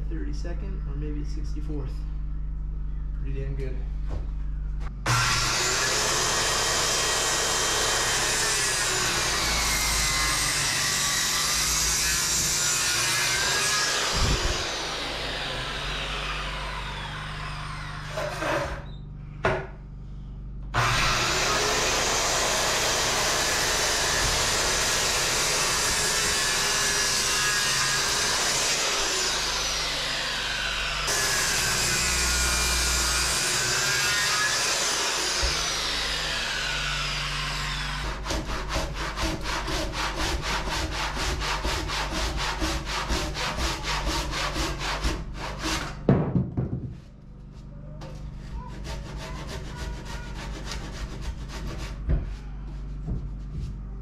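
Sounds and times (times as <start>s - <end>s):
circular saw cutting timber: 5.0s - 18.8s, 20.8s - 46.0s, 48.4s - 52.0s
handsaw strokes: 37.8s - 46.0s, 48.4s - 52.1s.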